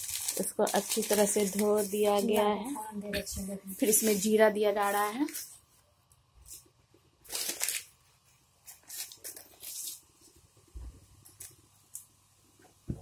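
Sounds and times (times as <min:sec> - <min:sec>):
seeds sizzling in hot oil: 0:00.0 - 0:02.4.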